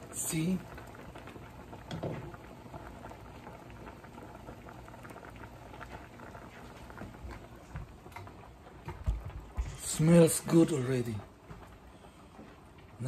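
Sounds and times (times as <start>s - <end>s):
water boiling and bubbling: 0.0s - 13.0s.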